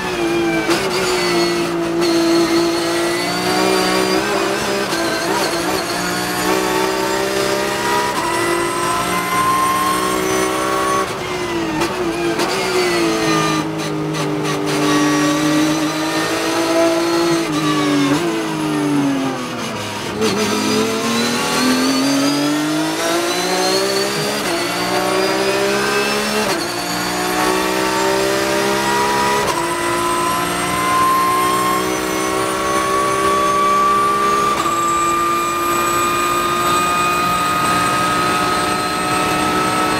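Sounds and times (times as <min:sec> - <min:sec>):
race car engine revving: 0:00.0 - 0:39.9
engine upshifts rising sweeps: 0:14.7 - 0:39.9.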